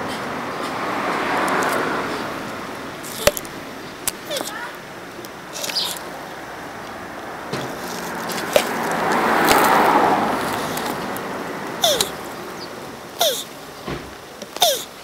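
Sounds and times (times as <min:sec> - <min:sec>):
broad rushing noise: 0:00.0 - 0:15.0
tortoise squeaking: 0:02.9 - 0:06.5, 0:07.6 - 0:11.2, 0:11.8 - 0:13.5, 0:14.6 - 0:15.0.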